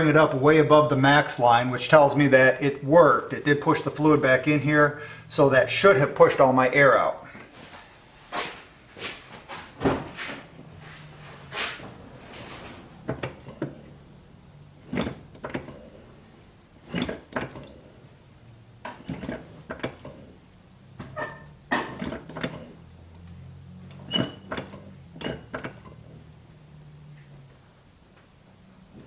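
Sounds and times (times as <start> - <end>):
brake pedal clunks and knocks: 9.4 - 18.2, 18.8 - 26.3
short squeaks: 14.8 - 18.0, 18.8 - 20.4, 21.0 - 26.2.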